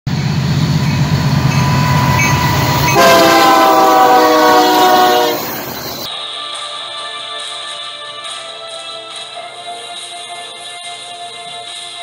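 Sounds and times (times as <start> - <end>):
diesel locomotive engine rumble: 0.1 - 6.1
locomotive air horn: 0.6 - 6.1.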